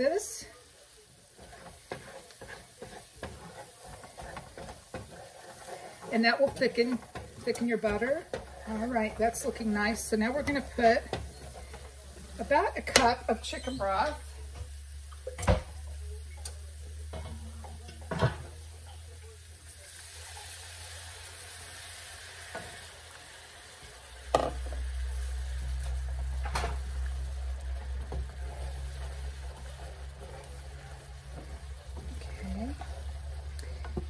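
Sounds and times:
wooden spoon scraping a pan: 0.0s - 15.4s, 23.9s - 34.0s
roux sizzling in a skillet: 0.0s - 34.0s
broth pouring into a pan: 19.0s - 34.0s.

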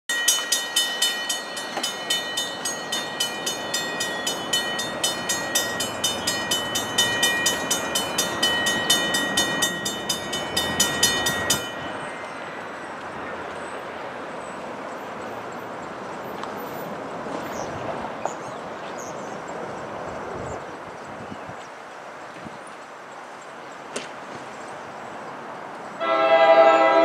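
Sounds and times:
railroad crossing bell ringing: 0.1s - 13.4s, 26.0s - 27.0s.

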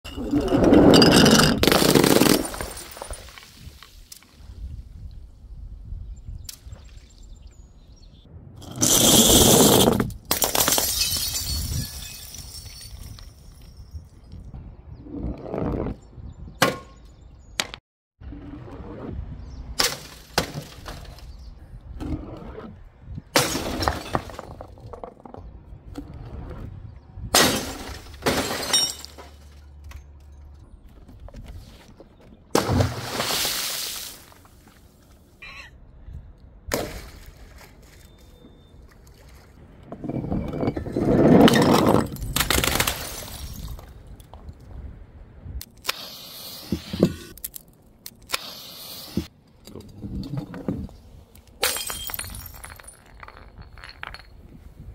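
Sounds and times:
glass smashing: 1.0s - 3.6s, 10.3s - 13.9s, 27.4s - 29.6s, 51.6s - 54.3s.

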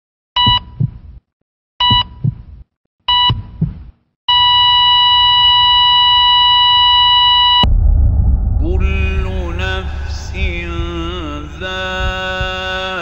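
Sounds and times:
heart monitor beeps: 0.4s - 1.0s, 1.8s - 2.4s, 3.1s - 7.6s
heartbeat thump: 0.4s - 1.2s, 1.8s - 2.6s, 3.2s - 3.9s, 7.7s - 13.0s.

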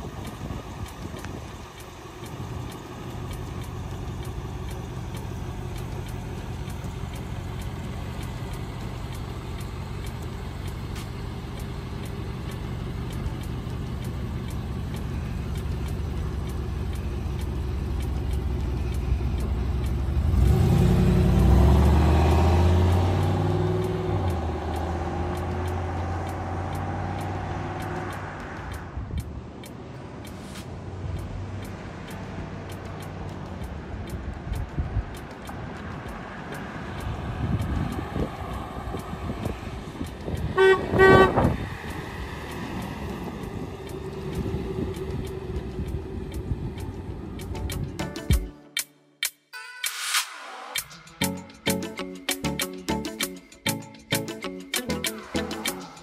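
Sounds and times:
car engine running and accelerating: 0.0s - 48.6s, 50.3s - 56.0s.

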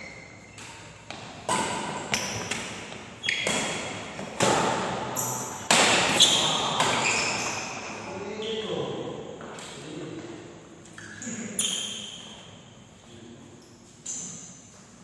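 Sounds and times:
rackets hitting shuttlecock: 0.5s - 7.8s.

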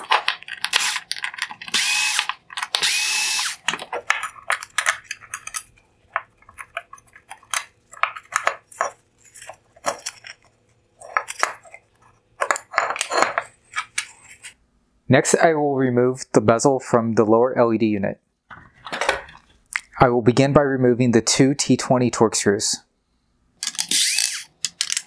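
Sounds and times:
small parts clicking and clinking: 0.0s - 11.8s, 23.6s - 25.0s
cordless screwdriver whine: 0.7s - 1.0s, 1.7s - 3.6s, 23.7s - 24.5s.

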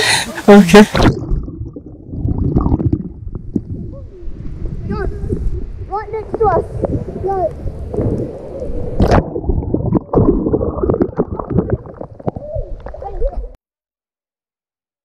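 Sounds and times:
water splash: 0.8s - 3.6s, 7.9s - 13.1s
muffled underwater gurgling: 0.8s - 13.6s.

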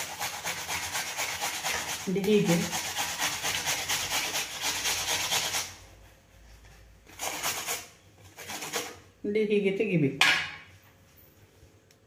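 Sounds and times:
cucumber grated on metal grater: 0.0s - 5.8s, 7.1s - 9.0s.

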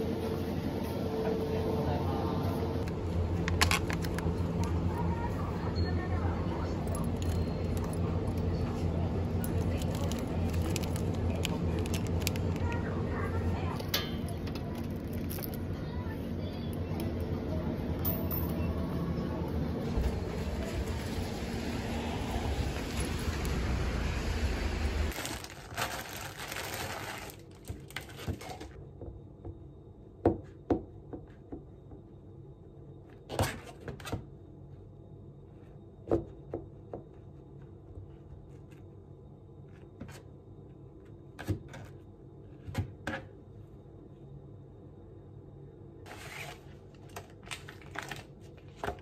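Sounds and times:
outdoor background noise: 0.0s - 49.0s.

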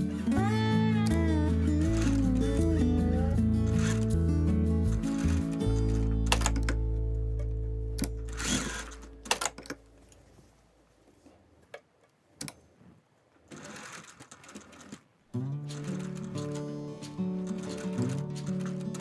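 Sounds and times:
background music: 0.0s - 9.7s, 15.4s - 19.0s
sewing machine stitching: 1.1s - 2.8s, 3.4s - 4.2s, 4.8s - 6.8s, 8.0s - 9.7s, 13.4s - 19.0s.

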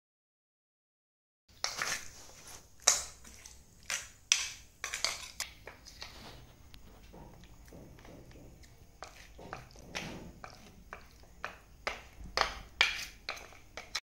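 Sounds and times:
spoon scraping and clinking on plate: 2.8s - 6.4s.

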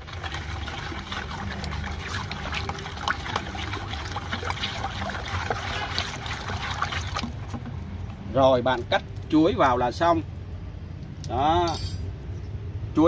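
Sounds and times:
liquid sloshing in bucket: 0.0s - 9.3s
stick scraping and knocking bucket: 5.4s - 7.8s.

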